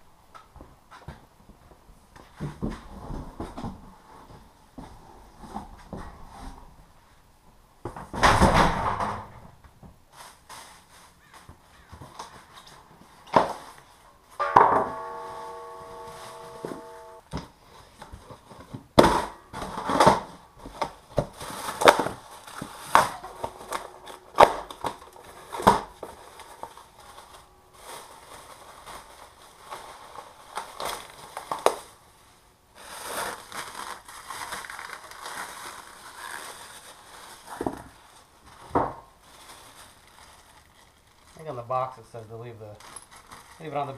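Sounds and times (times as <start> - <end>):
plastic and styrofoam crinkling: 10.1 - 14.0, 14.9 - 43.9
knocks: 14.4 - 17.2.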